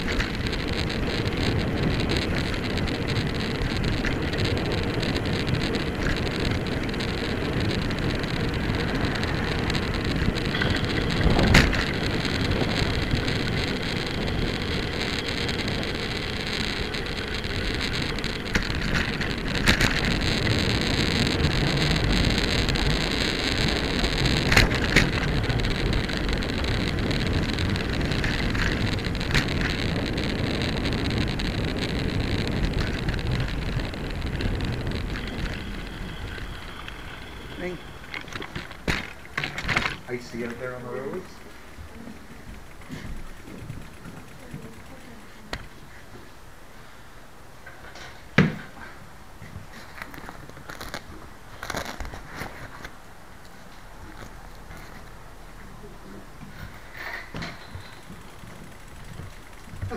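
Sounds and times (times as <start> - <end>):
wind rushing on microphone: 0.0 - 40.8
bicycle tyre noise on road: 0.0 - 59.9.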